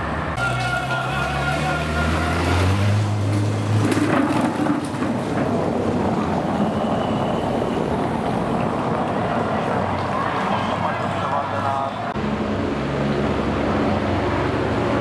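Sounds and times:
bicycle rolling over cobblestones: 3.2 - 7.3.

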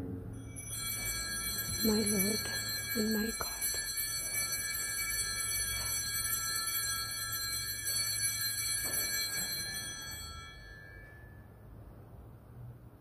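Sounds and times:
altar bells ringing: 0.3 - 11.9.

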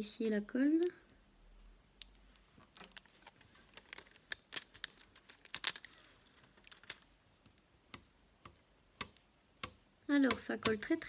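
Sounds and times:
plastic film peeling: 2.0 - 7.7.

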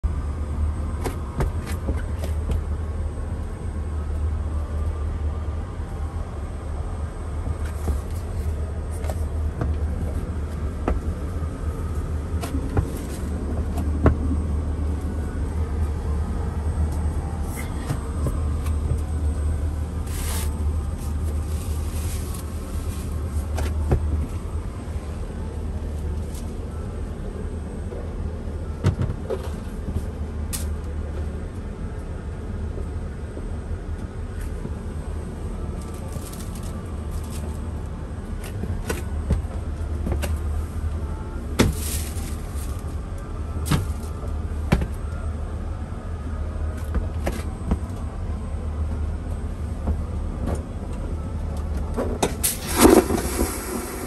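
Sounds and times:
aircraft cabin rumble: 0.0 - 54.0
brief hiss: 52.4 - 54.0.

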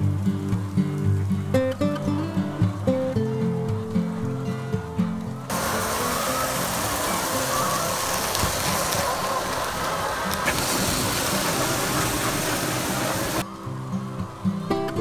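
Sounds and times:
feed cart machine running: 5.5 - 13.4
feed pouring into trough: 5.5 - 13.4.

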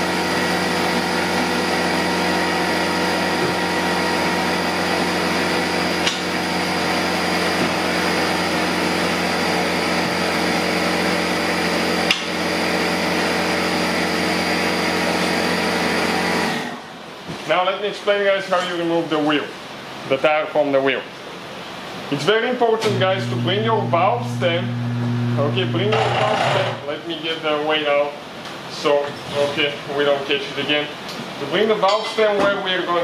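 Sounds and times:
electric motor humming: 22.9 - 26.8.

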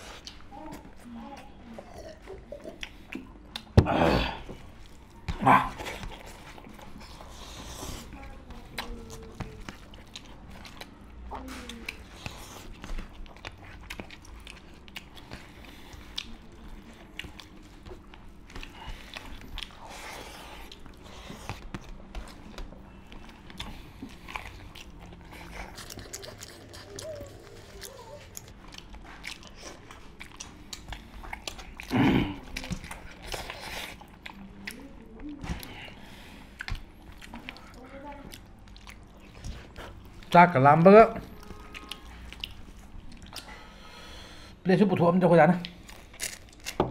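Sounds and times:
people chewing food: 0.0 - 44.7, 45.4 - 46.9
wet smacks and clicks: 36.5 - 39.6.

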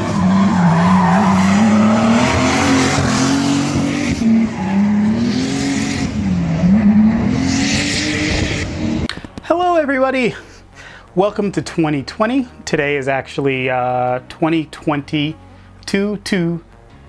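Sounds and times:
tyres squealing: 0.0 - 5.2
car engine revving: 0.0 - 9.1.

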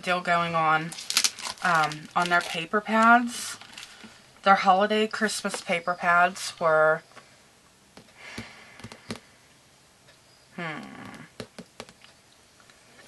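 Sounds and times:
person speaking: 0.0 - 3.7, 10.6 - 11.5
paper rustling: 0.9 - 4.1
fingers tapping paper pad: 8.0 - 9.3, 11.0 - 12.1.

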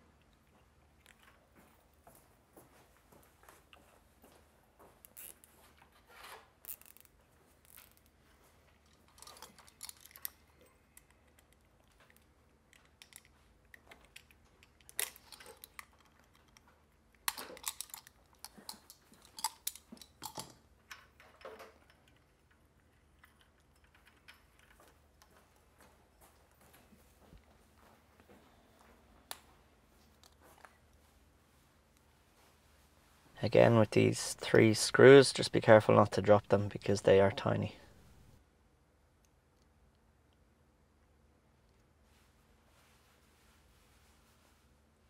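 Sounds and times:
plastic parts rustling: 6.1 - 25.4.

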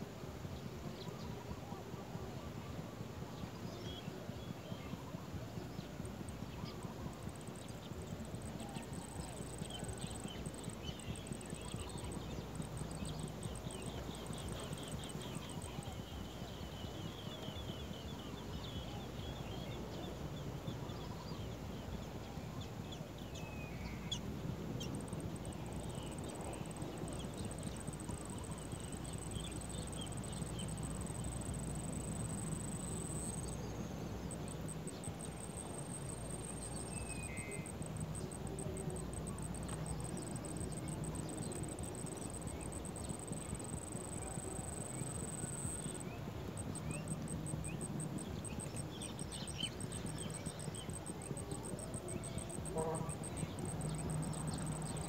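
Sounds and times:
faint chirps: 3.8 - 55.0
high-pitched insect trill: 6.6 - 17.1, 24.8 - 55.0
low background rumble: 23.9 - 55.0.

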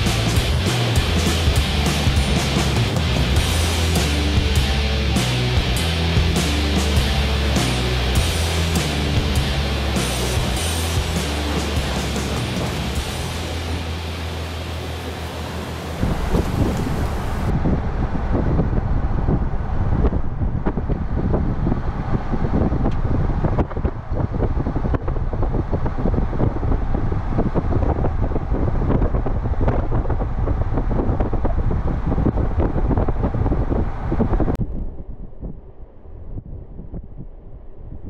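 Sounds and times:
low road rumble: 0.0 - 38.0
wind buffeting microphone: 9.7 - 38.0.

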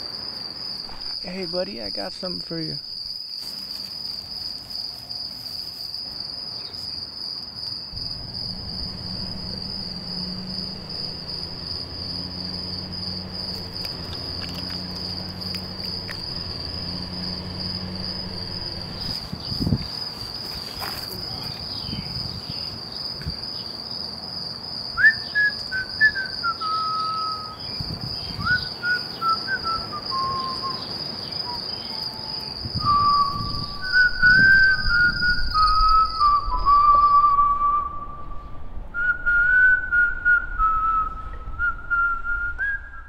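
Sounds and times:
crickets chirring: 0.0 - 43.0
person whistling a slow tune: 25.0 - 27.6, 28.4 - 30.9, 32.8 - 43.0.

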